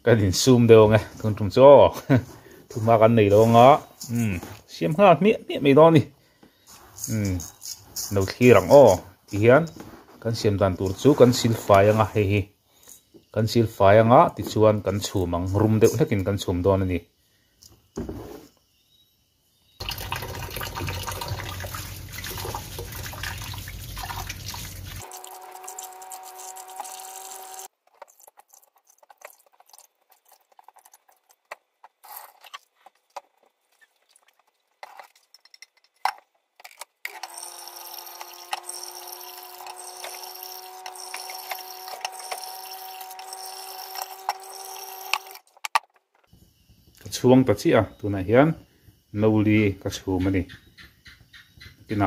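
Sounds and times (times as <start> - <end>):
tap water running into a bowl: 19.8 - 27.7.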